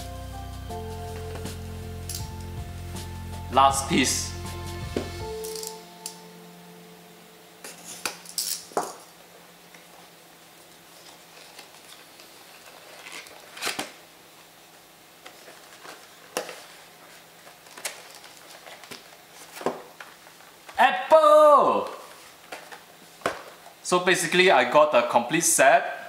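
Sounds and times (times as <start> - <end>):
card pulled apart: 11.2 - 14.0
wrapper tearing: 11.3 - 14.0.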